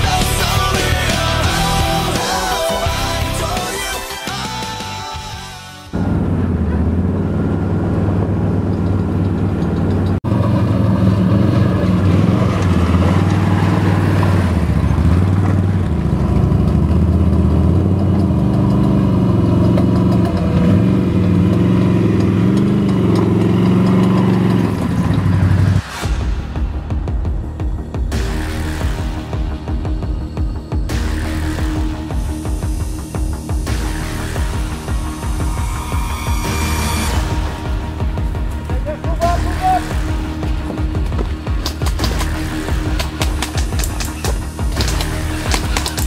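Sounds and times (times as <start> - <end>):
quad bike engines revving: 5.9 - 25.9, 30.9 - 46.0.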